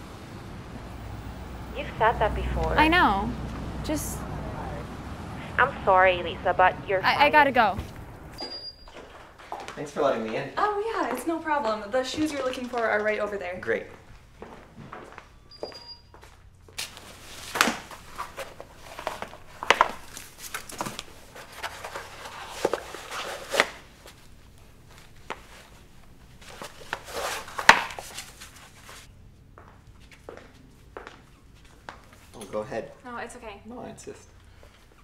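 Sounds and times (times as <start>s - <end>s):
footsteps: 5.4s - 23.3s.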